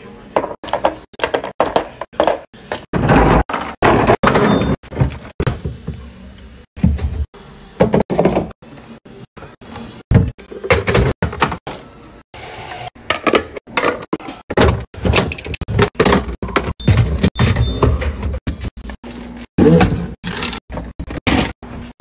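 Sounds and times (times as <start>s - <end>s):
plastic containers knocking and clattering: 0.3s - 6.0s, 13.0s - 18.7s.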